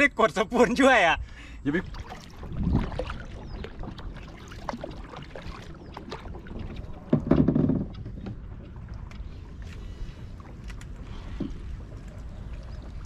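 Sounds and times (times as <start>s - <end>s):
paddle splashing in water: 1.8s - 13.0s
small clicks and drips: 7.5s - 13.0s.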